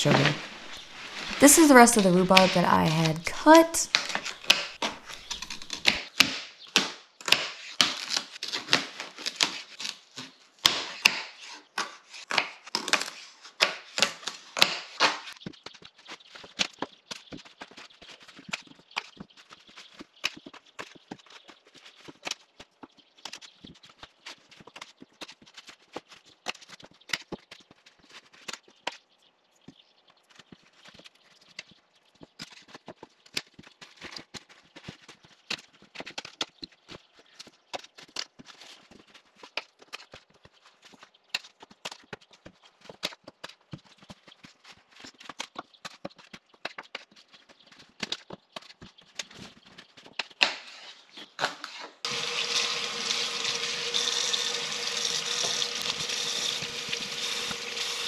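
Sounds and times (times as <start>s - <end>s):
water running into sink: 52.1s - 58.0s.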